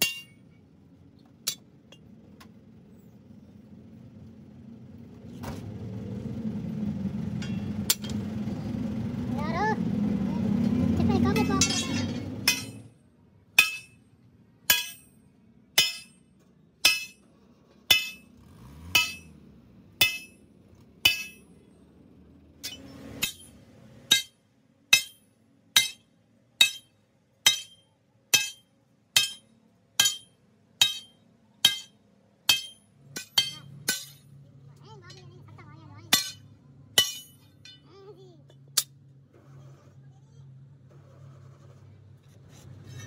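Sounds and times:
sledgehammer striking steel: 0:00.0 - 0:00.4, 0:11.4 - 0:12.9, 0:13.6 - 0:14.0, 0:14.7 - 0:15.2, 0:15.8 - 0:16.2, 0:16.8 - 0:17.3, 0:17.9 - 0:19.4, 0:20.0 - 0:20.4, 0:21.0 - 0:21.5, 0:22.6 - 0:34.3, 0:36.1 - 0:37.8.

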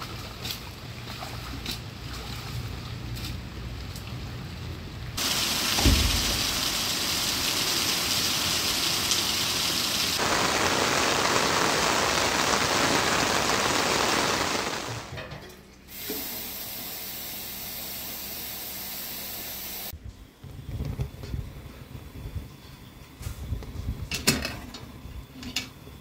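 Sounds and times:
running water rushing: 0:05.2 - 0:15.1.

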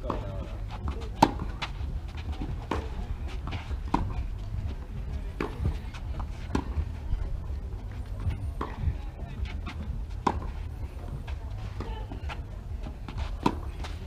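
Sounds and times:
racket hitting tennis ball: 0:00.0 - 0:04.3, 0:05.4 - 0:06.9, 0:13.1 - 0:14.0
low rumble: 0:00.0 - 0:14.0.

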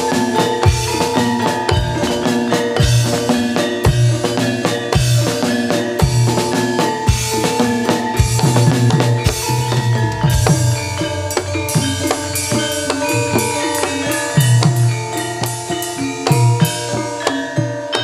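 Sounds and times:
metallophones and gongs ringing: 0:00.0 - 0:18.0
steady drum beat: 0:00.0 - 0:18.0.

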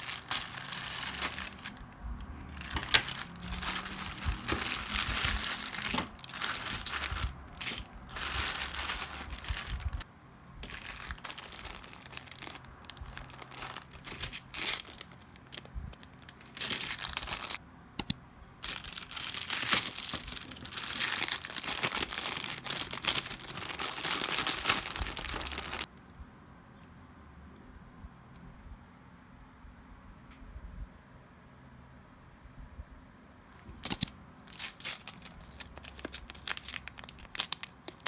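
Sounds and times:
plastic packaging crinkling: 0:00.0 - 0:10.0, 0:10.6 - 0:17.6, 0:18.6 - 0:25.9, 0:33.8 - 0:38.0.

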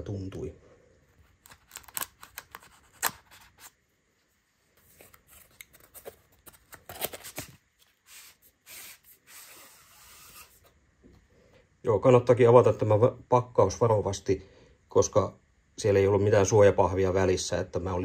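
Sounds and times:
packaging rustling and scraping: 0:01.1 - 0:03.8, 0:04.7 - 0:10.6.

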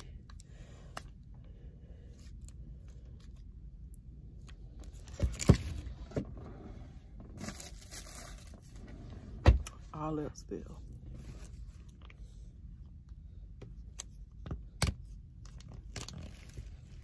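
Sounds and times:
crinkly plastic rustling: 0:07.2 - 0:08.8, 0:15.6 - 0:17.0.

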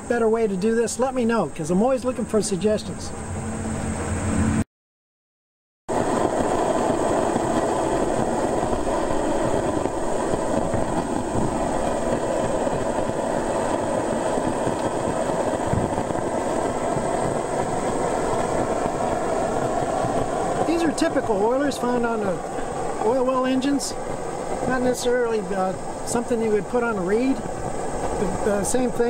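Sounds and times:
line shaft machinery: 0:05.9 - 0:29.0
oil field engine running: 0:05.9 - 0:29.0.

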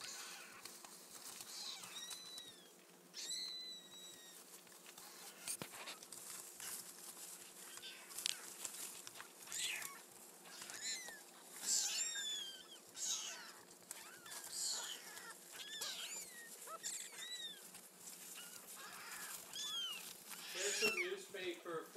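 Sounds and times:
kittens mewing: 0:00.0 - 0:21.4.

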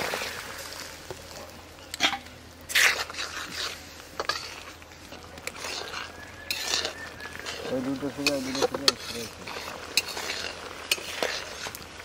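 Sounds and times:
utensils clicking and scraping pan: 0:01.9 - 0:12.0.

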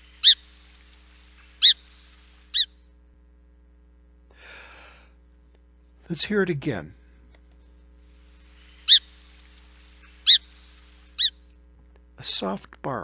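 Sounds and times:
sparrow chip calls: 0:00.0 - 0:02.7, 0:08.2 - 0:11.4.

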